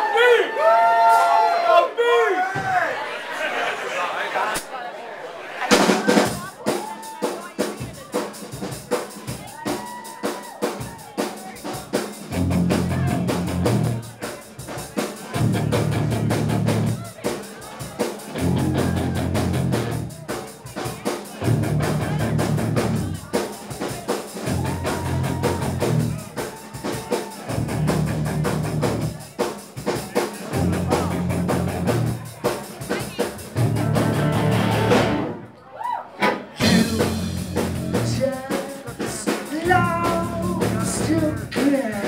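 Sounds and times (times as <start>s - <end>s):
drum kit beat: 5.7s - 35.4s, 36.2s - 42.0s
bass and guitars heavy riff: 12.3s - 14.1s, 15.4s - 17.0s, 18.3s - 20.2s, 21.4s - 23.3s, 24.4s - 29.2s, 30.4s - 32.4s, 33.4s - 35.4s, 36.6s - 41.7s.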